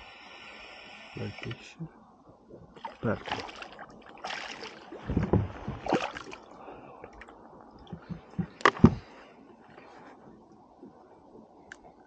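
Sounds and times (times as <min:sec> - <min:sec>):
fish splashing in water: 0:02.8 - 0:06.5
knocks against kayak: 0:08.0 - 0:09.1.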